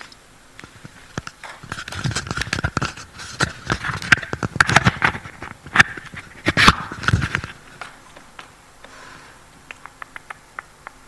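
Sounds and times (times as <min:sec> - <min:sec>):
lapel microphone handling noise: 0:00.0 - 0:08.5.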